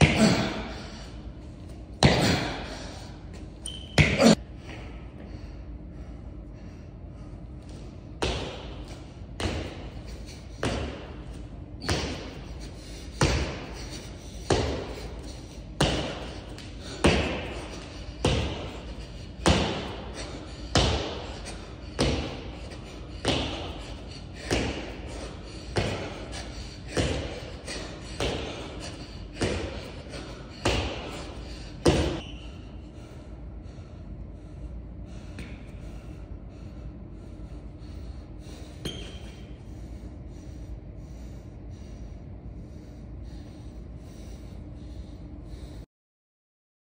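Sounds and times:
feet landing on gym floor: 8.2s - 12.4s, 29.4s - 32.2s.

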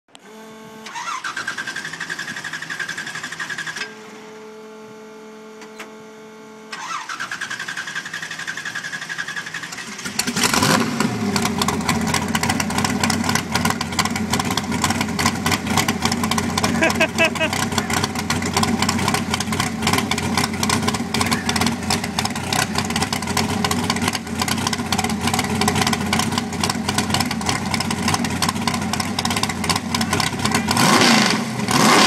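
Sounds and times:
engine starter whirring: 0.2s - 4.1s, 6.7s - 11.0s
loud engine running: 6.4s - 32.0s.

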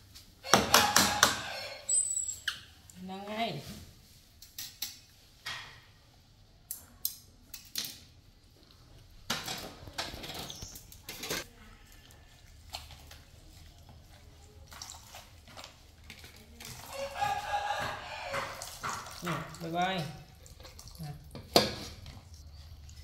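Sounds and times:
plastic bowls knocking and clinking: 16.0s - 20.2s.

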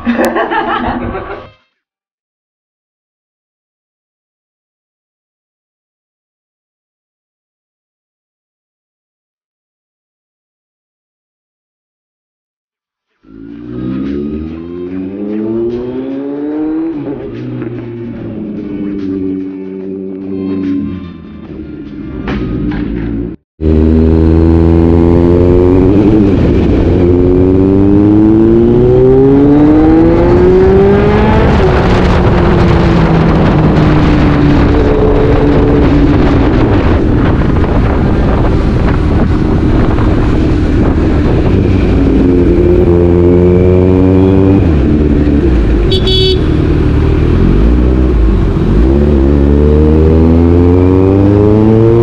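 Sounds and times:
motorcycle engine accelerating: 13.2s - 20.8s, 21.6s - 52.0s.

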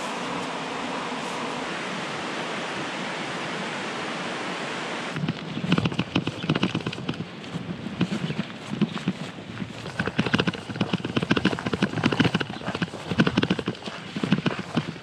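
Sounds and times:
steady rushing hiss: 0.0s - 15.0s
footsteps crunching on gravel: 5.2s - 15.0s.

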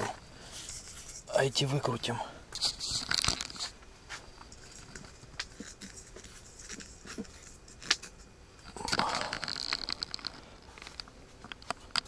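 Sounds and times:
small clicks of bulbs: 6.8s - 12.0s.

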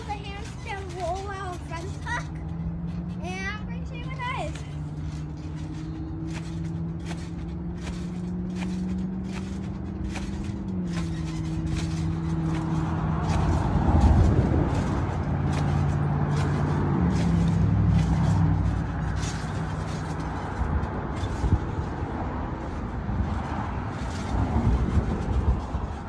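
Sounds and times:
motor hum: 0.0s - 26.0s
trampoline springs clicking: 0.0s - 26.0s.

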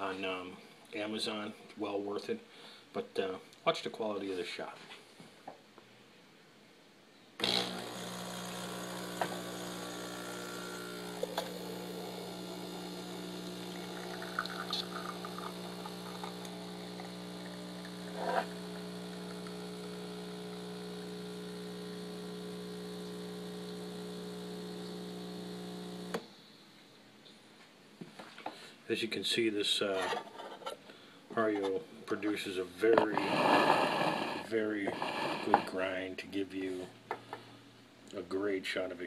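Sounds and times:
espresso machine pump humming: 7.4s - 26.2s, 33.0s - 35.7s.

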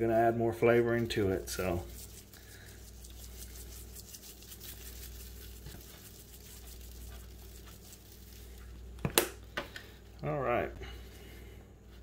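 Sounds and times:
steady low hum: 0.0s - 12.0s
hands rubbing chicken skin: 0.7s - 10.3s.

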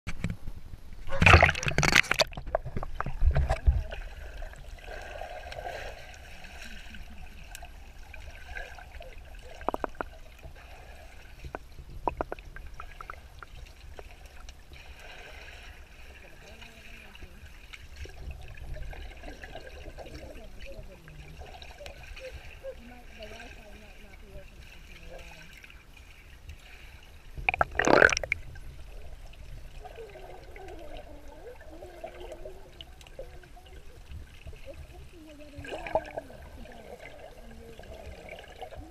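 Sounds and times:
muffled underwater churning and bubbling: 0.3s - 38.9s
burst of water noise: 1.1s - 5.9s, 27.4s - 29.1s.

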